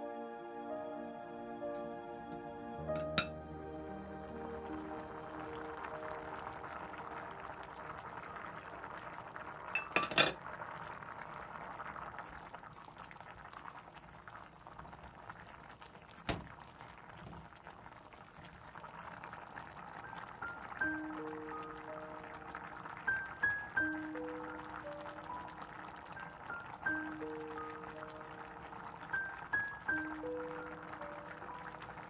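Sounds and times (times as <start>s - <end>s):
soup bubbling in a pot: 4.2s - 32.0s
clinks against a pot: 9.8s - 10.4s.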